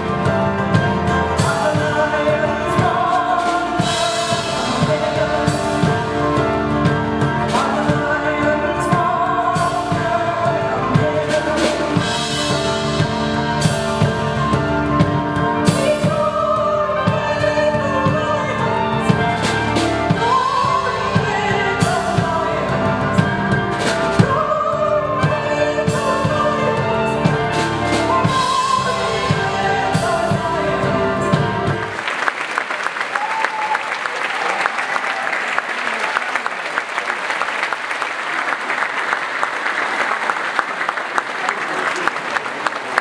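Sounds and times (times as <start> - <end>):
woman singing with live band: 1.0 - 12.6, 15.4 - 31.9
audience applause: 31.8 - 43.0.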